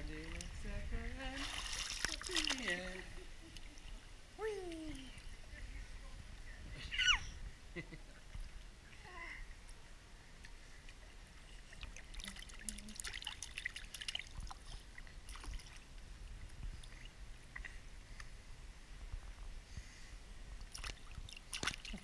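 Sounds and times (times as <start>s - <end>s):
small water splashes: 0.0s - 5.3s, 11.4s - 16.0s, 20.6s - 22.0s
pool water lapping: 0.0s - 7.2s, 8.0s - 19.4s, 20.4s - 22.0s.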